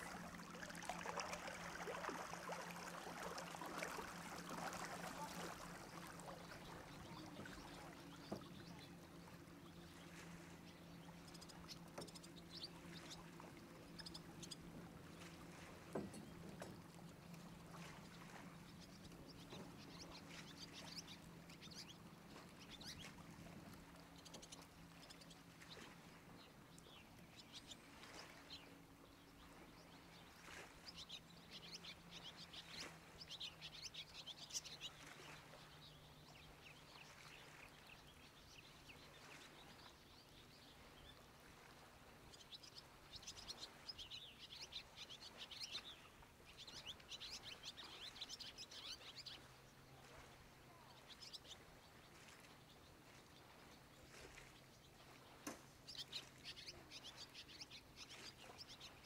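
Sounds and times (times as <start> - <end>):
small birds chirping: 0.2 - 41.6, 42.2 - 59.0.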